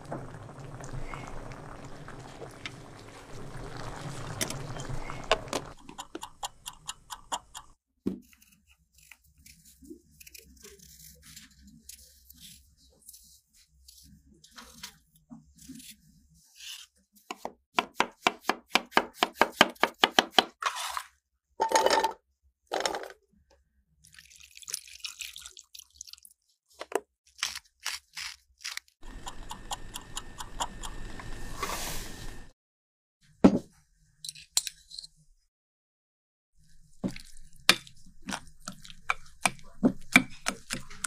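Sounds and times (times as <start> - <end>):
milk pouring into saucepan: 0.0 - 5.8
milk boiling in pan: 0.0 - 7.3.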